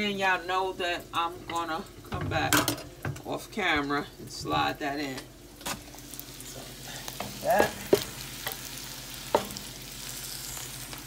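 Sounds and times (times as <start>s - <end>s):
meat sizzling in a frying pan: 5.4s - 11.0s.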